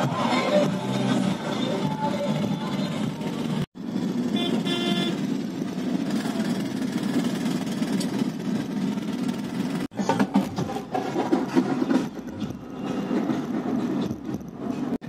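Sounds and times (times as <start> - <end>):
traffic and road noise: 0.0 - 15.0
vehicle horn beeping: 4.3 - 5.3.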